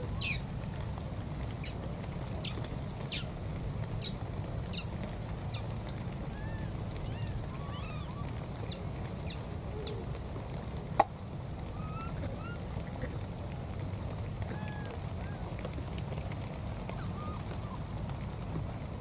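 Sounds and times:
faint warbling calls: 0:00.0 - 0:00.6, 0:02.4 - 0:03.4, 0:04.0 - 0:10.1, 0:11.7 - 0:12.9, 0:16.8 - 0:17.9.

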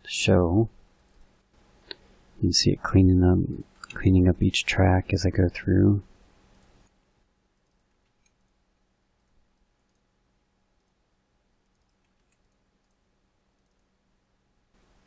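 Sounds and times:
computer mouse clicks: 0:01.0 - 0:02.0, 0:03.8 - 0:04.0, 0:06.5 - 0:07.0, 0:07.6 - 0:08.6, 0:09.2 - 0:10.1, 0:10.8 - 0:11.0, 0:11.6 - 0:13.0, 0:13.6 - 0:13.9.

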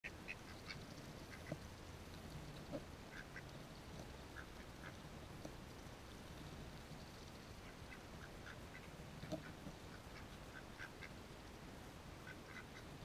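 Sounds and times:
duck bills nibbling grass: 0:00.0 - 0:13.0.

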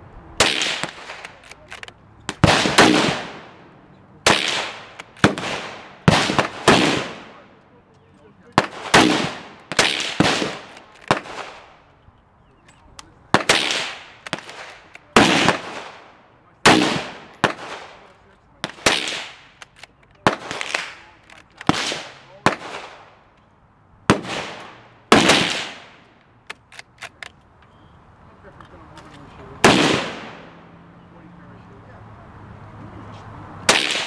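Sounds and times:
rifle shots echoing: 0:00.4 - 0:07.6, 0:08.4 - 0:11.9, 0:13.3 - 0:23.3, 0:24.1 - 0:27.2, 0:29.6 - 0:30.7, 0:33.7 - 0:34.0.

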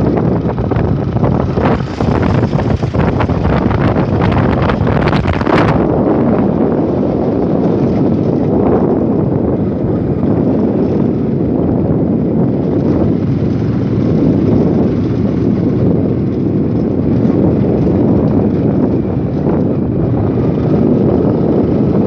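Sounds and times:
motorcycle engine running: 0:00.0 - 0:22.0
wind buffeting microphone: 0:00.0 - 0:22.0.

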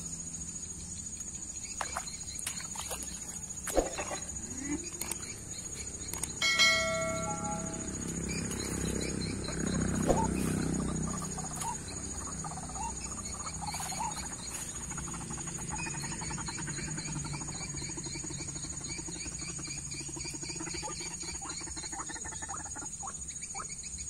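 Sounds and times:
high insect whine: 0:00.0 - 0:24.0
waterhen pulsing croak: 0:01.5 - 0:23.9.

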